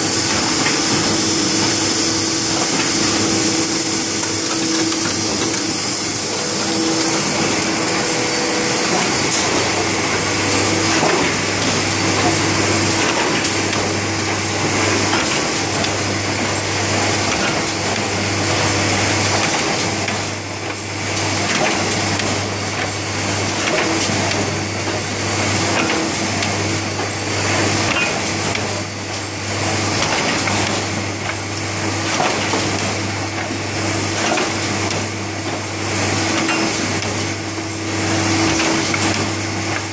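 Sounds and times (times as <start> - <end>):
low cycling hum: 0.0 - 15.2
machine clatter and whir: 0.0 - 39.9.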